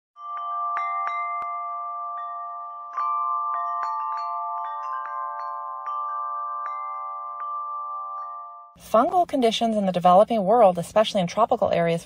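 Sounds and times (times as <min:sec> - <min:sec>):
chiming bell-like music: 0:00.2 - 0:08.8.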